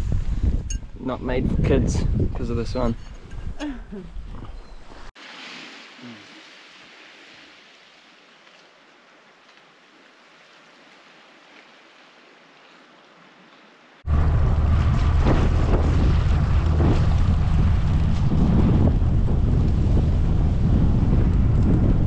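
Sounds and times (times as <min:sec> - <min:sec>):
wind rumbling on microphone: 0:00.0 - 0:05.1, 0:14.0 - 0:22.0
water splashing: 0:04.4 - 0:21.8.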